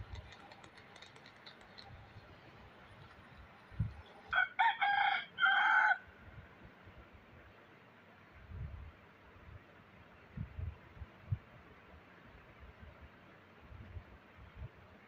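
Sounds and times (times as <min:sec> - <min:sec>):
rooster crowing: 0:04.3 - 0:06.1.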